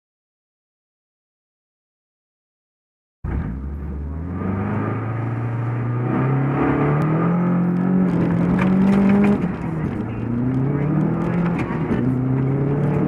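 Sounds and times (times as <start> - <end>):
car engine revving: 3.3 - 13.0.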